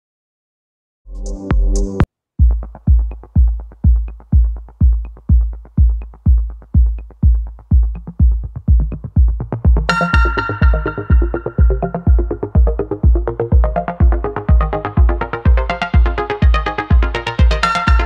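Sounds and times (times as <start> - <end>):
steady kick-drum beat: 1.4 - 18.0
electronic music sting: 9.9 - 13.0.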